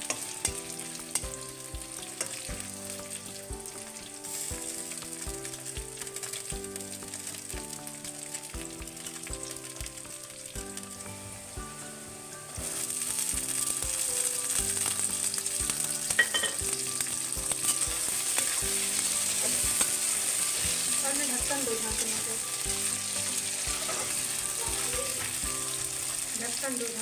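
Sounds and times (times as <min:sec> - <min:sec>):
vegetables sizzling in oil: 0:00.0 - 0:27.0
metal spatula scraping pan: 0:23.8 - 0:24.2.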